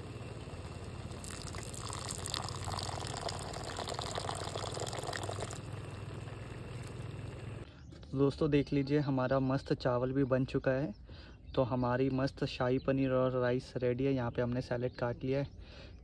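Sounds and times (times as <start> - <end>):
steady low hum: 0.0 - 8.0
water pouring into pot: 0.9 - 7.0.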